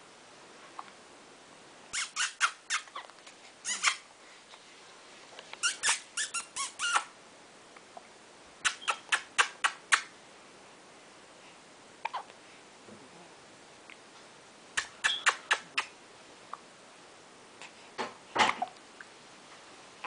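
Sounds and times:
squeaky mouth sounds: 0:01.9 - 0:04.0, 0:05.5 - 0:07.1, 0:08.6 - 0:10.1, 0:12.0 - 0:12.3, 0:14.8 - 0:16.0.

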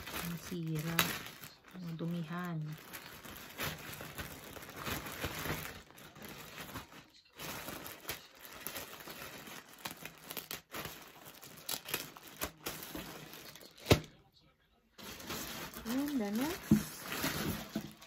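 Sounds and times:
plastic wrapping crinkling: 0:00.0 - 0:14.2, 0:15.0 - 0:18.0.

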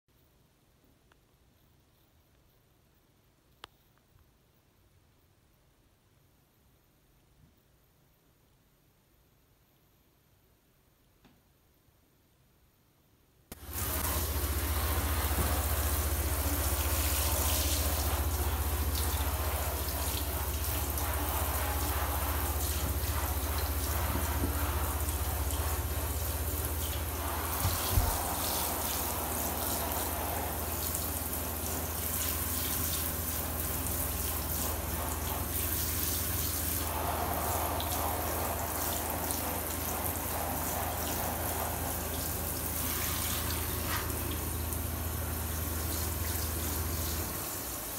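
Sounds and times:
steady low hum: 0:13.5 - 0:47.3
shower head spraying water: 0:13.5 - 0:47.9.

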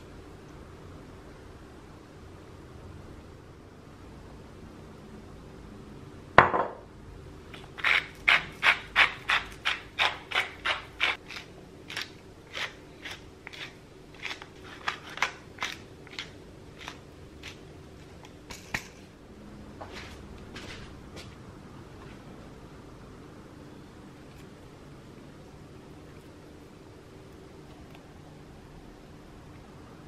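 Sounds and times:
pepper mill grinding: 0:07.5 - 0:19.0.

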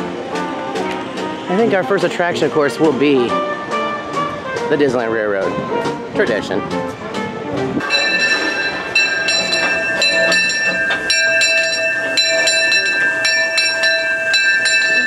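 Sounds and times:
steam locomotive bell ringing: 0:07.8 - 0:15.0.

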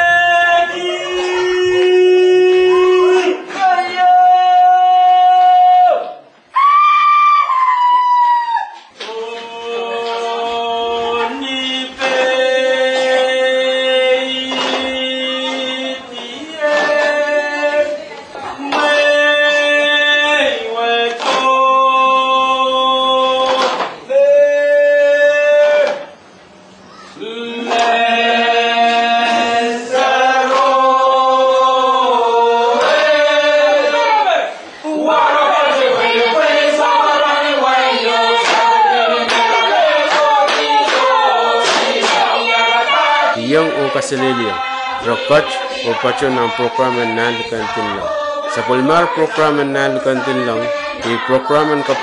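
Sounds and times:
voices chanting in chords: 0:00.0 - 0:06.6, 0:07.4 - 0:52.0
voices chanting long notes: 0:27.2 - 0:52.0.

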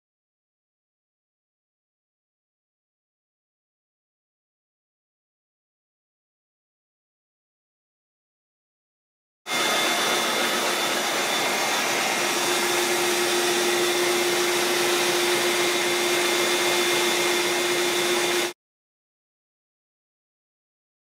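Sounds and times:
shop vac running with whine: 0:09.5 - 0:18.6.

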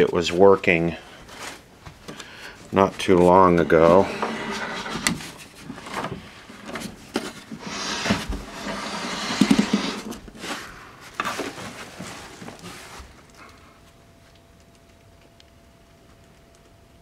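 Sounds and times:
rubbing on wood: 0:02.8 - 0:06.9, 0:07.5 - 0:13.1.

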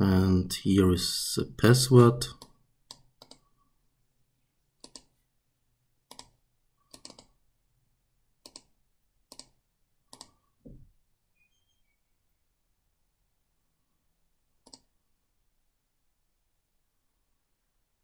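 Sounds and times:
computer mouse clicks: 0:02.4 - 0:03.5, 0:04.8 - 0:05.2, 0:06.0 - 0:07.4, 0:08.4 - 0:10.8, 0:14.6 - 0:15.0.

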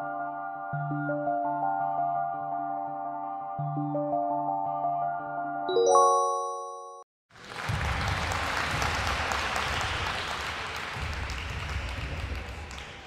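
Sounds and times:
chime ringing: 0:05.7 - 0:07.0
applause: 0:07.3 - 0:13.0.

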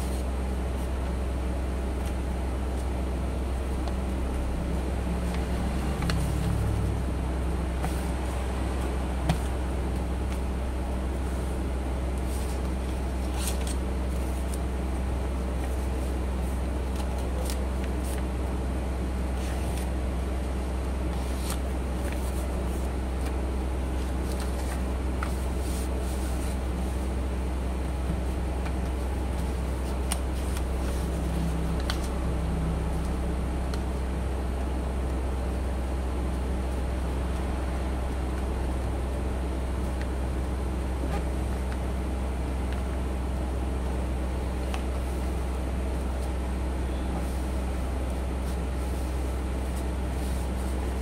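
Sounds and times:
low hum: 0:00.0 - 0:51.0
paper crinkling being folded: 0:15.5 - 0:18.3, 0:21.1 - 0:27.1.

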